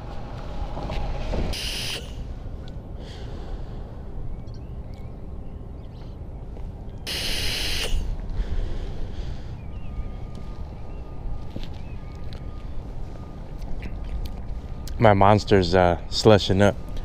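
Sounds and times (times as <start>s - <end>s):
short hissing bursts: 1.6s - 2.2s, 7.1s - 8.1s.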